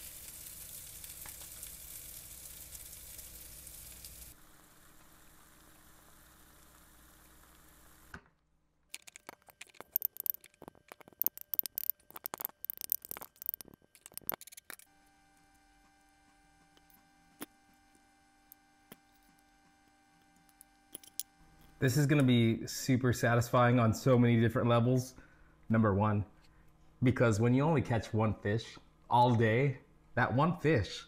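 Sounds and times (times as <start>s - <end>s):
faint frying sizzle: 0.0s - 8.2s
faint steady hum: 0.0s - 31.0s
small clinks: 8.9s - 14.9s, 20.2s - 21.8s.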